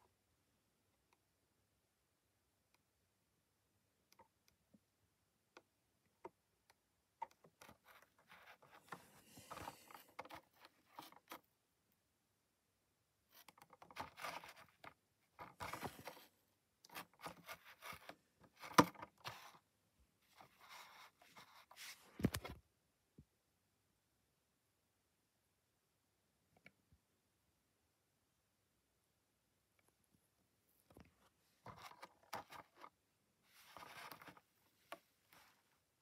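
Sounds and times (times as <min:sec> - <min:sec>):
plastic case scraping and rubbing: 0:07.4 - 0:11.4, 0:13.3 - 0:19.6, 0:31.6 - 0:32.9, 0:33.5 - 0:35.6.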